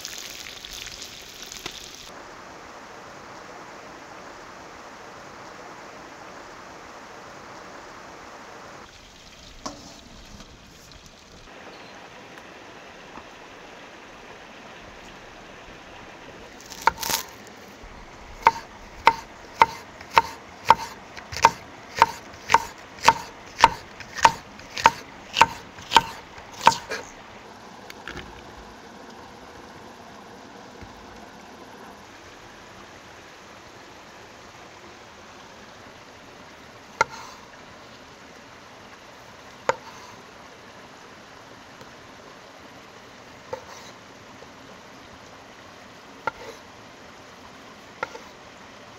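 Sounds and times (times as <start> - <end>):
knife chopping on wooden board: 18.4 - 27.0
knife cutting into board: 18.5 - 27.1.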